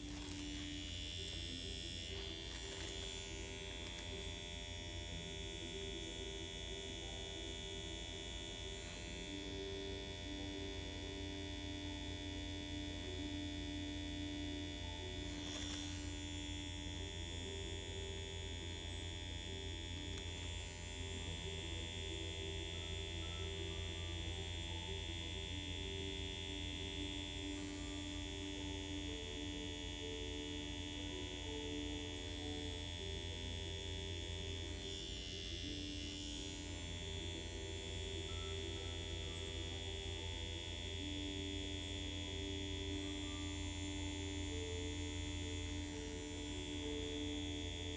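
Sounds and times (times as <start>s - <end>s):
makeup machine buzzing: 0.0s - 47.9s.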